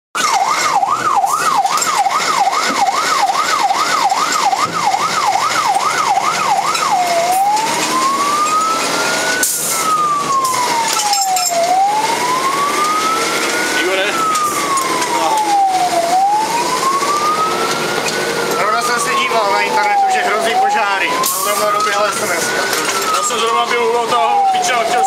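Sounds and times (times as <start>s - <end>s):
siren wailing: 0.2s - 25.0s
siren yelping: 0.2s - 25.0s.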